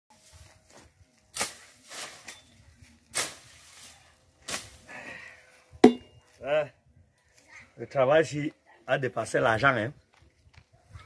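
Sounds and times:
machete chopping: 5.8s - 6.1s.

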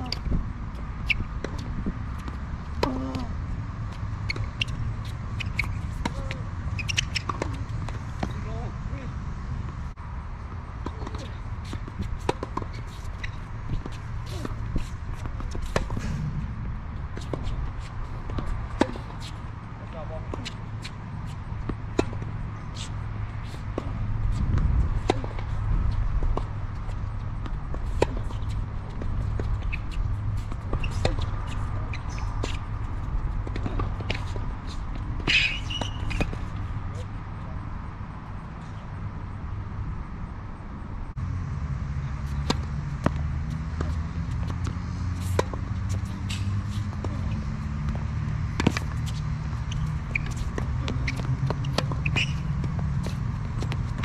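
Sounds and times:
ball bouncing on hard court: 4.2s - 8.6s, 33.4s - 36.6s, 42.4s - 54.0s
tennis ball hits: 5.4s - 8.5s, 10.8s - 19.3s, 42.3s - 54.0s
low steady rumble: 15.6s - 18.5s.

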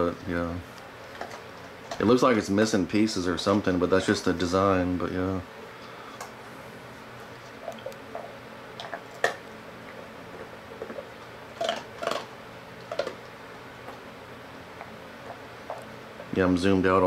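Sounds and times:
dog crunching biscuit: 7.5s - 14.0s.

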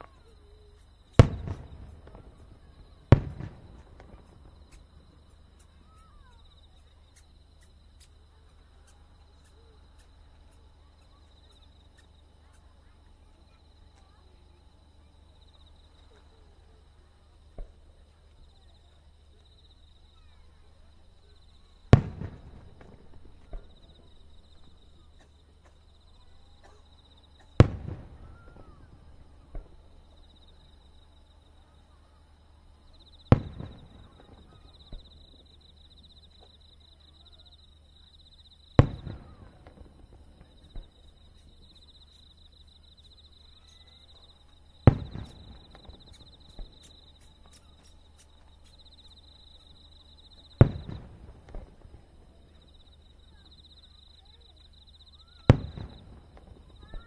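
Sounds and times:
faint firework report: 0.0s - 57.0s
firework shells booming: 1.1s - 6.4s, 21.1s - 30.6s, 33.2s - 35.5s, 38.7s - 41.7s, 44.5s - 52.8s, 55.3s - 57.0s.

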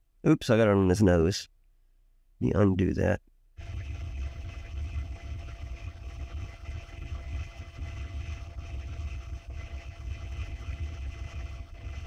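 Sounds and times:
steady low rumble: 3.6s - 12.0s.

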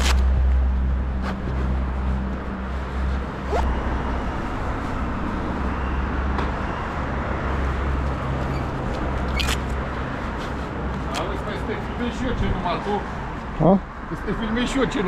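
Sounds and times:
brief rising squeaks: 8.4s - 9.6s.

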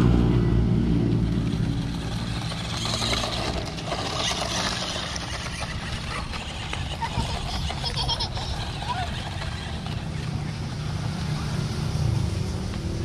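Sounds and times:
small electric motor droning: 1.1s - 13.0s.

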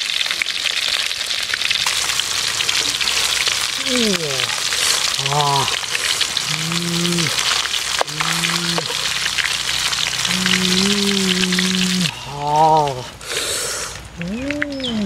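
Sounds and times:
fish sizzling in hot oil: 0.0s - 14.6s.

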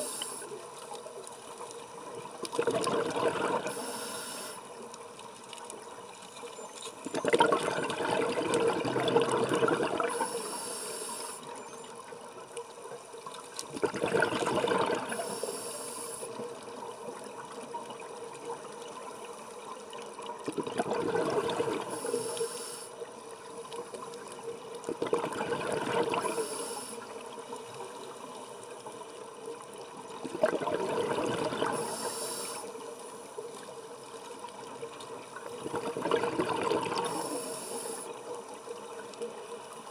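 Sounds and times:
high hiss of inhalation: 0.0s - 0.5s, 3.7s - 4.6s, 10.0s - 11.5s, 15.1s - 16.3s, 21.9s - 22.9s, 26.2s - 27.0s, 31.7s - 32.7s, 37.0s - 38.1s
bubbling exhalation underwater: 2.5s - 3.8s, 7.1s - 10.2s, 13.7s - 15.2s, 20.4s - 22.0s, 24.9s - 26.4s, 30.2s - 31.8s, 35.6s - 37.2s.

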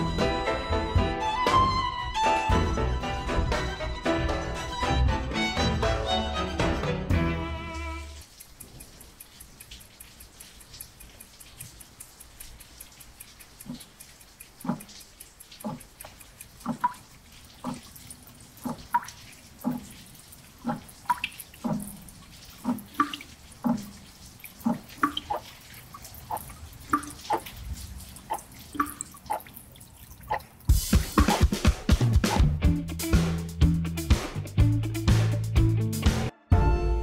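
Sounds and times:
water drops plinking: 8.2s - 31.6s
loud music: 30.7s - 37.0s.

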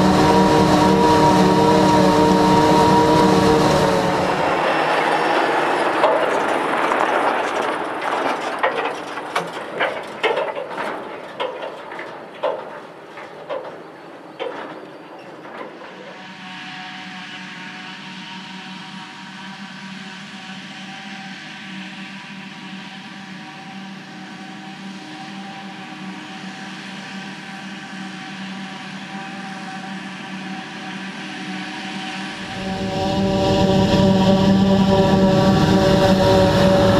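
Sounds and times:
tractor engine passing: 0.0s - 10.1s, 32.3s - 36.9s
forage harvester drone with whine: 0.0s - 36.9s
trailer clanking and knocking: 2.8s - 13.8s
tyres on gravel: 4.6s - 13.4s.

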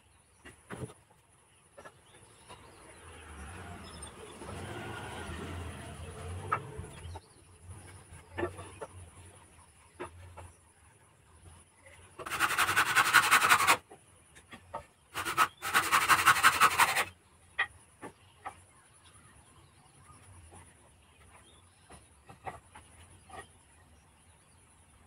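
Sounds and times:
hand saw cutting wood: 12.2s - 13.8s, 15.1s - 17.1s.

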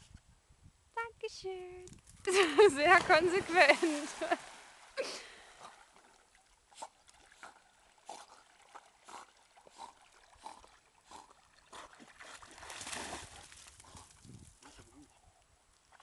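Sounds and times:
dog paddling splashes: 5.6s - 13.8s.

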